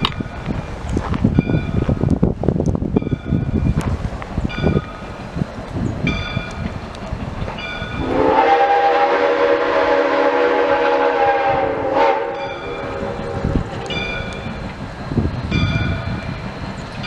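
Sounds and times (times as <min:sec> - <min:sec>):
locomotive bell ringing: 0:07.6 - 0:08.2, 0:12.0 - 0:14.7, 0:15.5 - 0:16.2
steam locomotive whistle: 0:08.0 - 0:14.4
engine rumble: 0:10.6 - 0:17.0.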